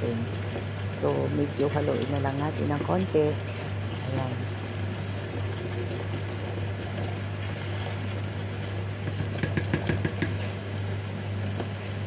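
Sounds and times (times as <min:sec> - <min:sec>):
steady low hum: 0:00.0 - 0:12.0
wooden spoon stirring porridge: 0:00.0 - 0:12.0
spoon knocking against pot: 0:09.4 - 0:10.4.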